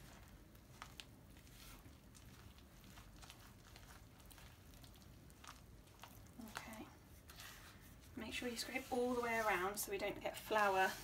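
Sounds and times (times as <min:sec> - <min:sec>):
spatula stirring thick batter: 0:00.0 - 0:11.0.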